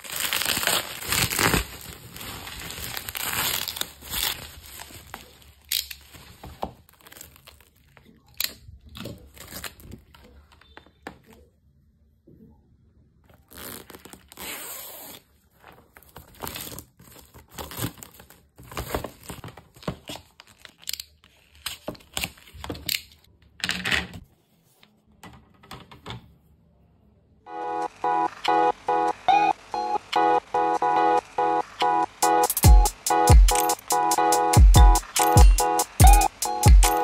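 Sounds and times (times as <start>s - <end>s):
plastic packaging crinkling and tearing: 0.0s - 11.5s, 13.3s - 22.9s.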